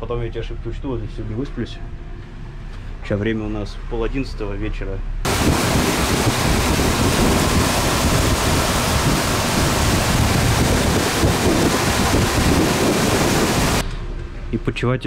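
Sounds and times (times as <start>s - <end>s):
rushing water: 5.3s - 13.8s
wind buffeting microphone: 5.3s - 13.9s.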